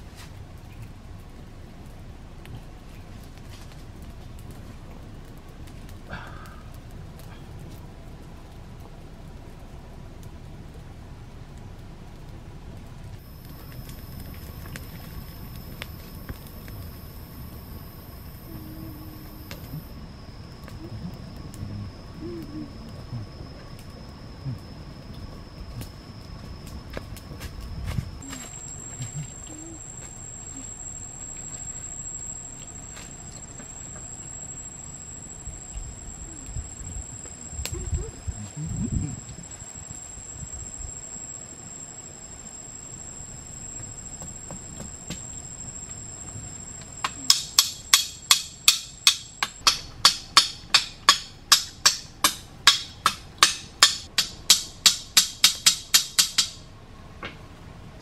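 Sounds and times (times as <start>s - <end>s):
high insect drone: 13.2s - 56.7s.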